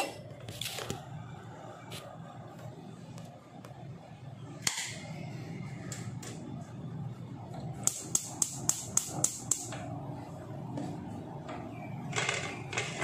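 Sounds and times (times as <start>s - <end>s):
gas hob igniter clicking: 7.8s - 9.8s.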